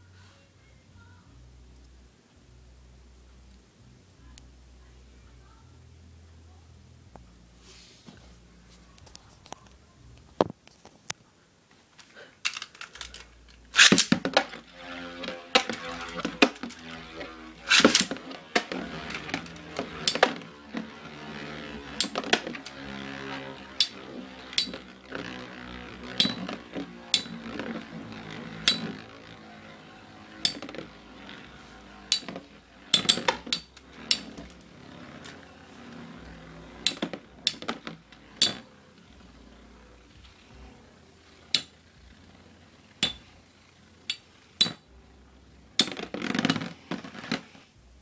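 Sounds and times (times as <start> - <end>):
spinning tops clinking together: 12.4 - 25.4.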